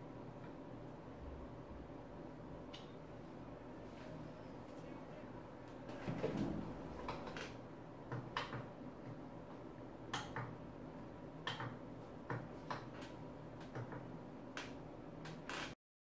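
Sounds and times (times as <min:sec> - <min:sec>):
office chair clicks and knocks: 0:05.9 - 0:08.7.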